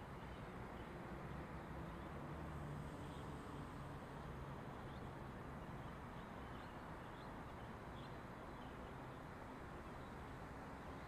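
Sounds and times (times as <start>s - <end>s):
road traffic hum: 0.0s - 11.0s.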